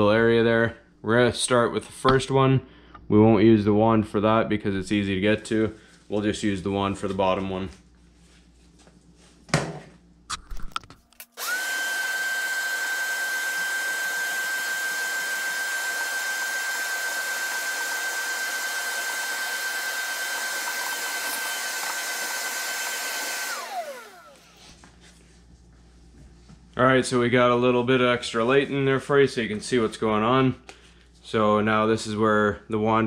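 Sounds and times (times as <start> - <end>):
shop vacuum whining: 11.2 - 25.0.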